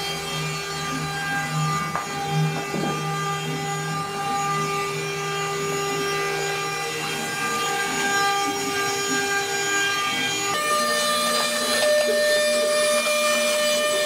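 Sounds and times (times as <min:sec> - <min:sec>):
cnc router motors whining: 0:00.0 - 0:14.0
router bit cutting wood: 0:00.0 - 0:14.0.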